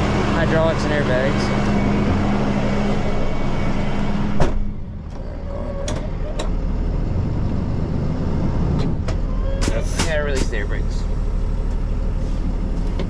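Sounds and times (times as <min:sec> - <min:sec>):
low engine rumble: 0:00.0 - 0:13.0
truck engine humming: 0:00.0 - 0:13.0
sharp clunk: 0:04.4 - 0:04.7.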